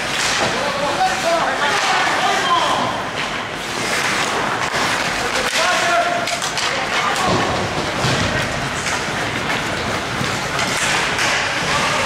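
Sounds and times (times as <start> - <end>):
hockey sticks clacking on puck: 0.0 - 12.0
skate blades scraping ice: 0.0 - 12.0.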